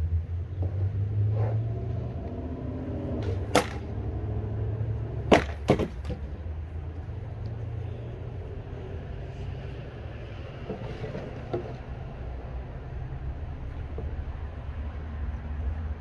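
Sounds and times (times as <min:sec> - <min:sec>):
weapon blows cracking on wooden shields: 0:03.2 - 0:03.9, 0:05.3 - 0:06.3.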